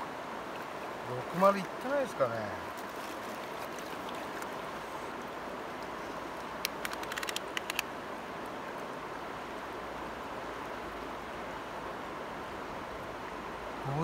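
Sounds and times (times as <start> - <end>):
stream water flowing over rocks: 0.0 - 14.0
sharp little clicks: 6.6 - 7.9.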